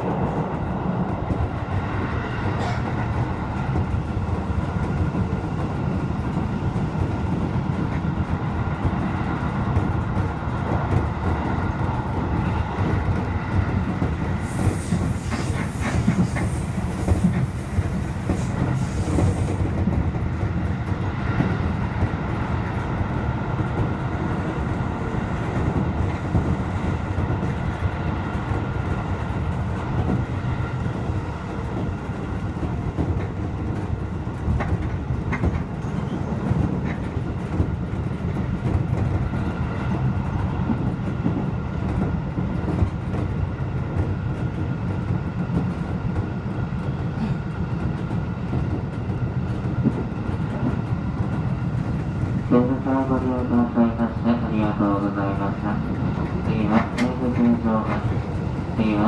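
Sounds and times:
wheels rumbling on rail: 0:00.0 - 0:59.0
hissing and clicks: 0:14.3 - 0:19.8.

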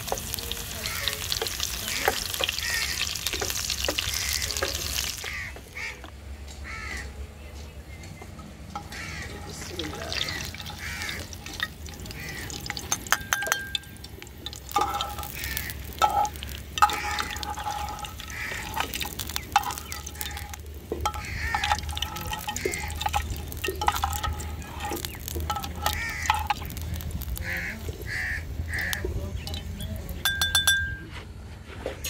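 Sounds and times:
oil sizzling: 0:00.0 - 0:05.8, 0:08.6 - 0:31.0
metal skimmer clinking against pan: 0:08.7 - 0:31.1.

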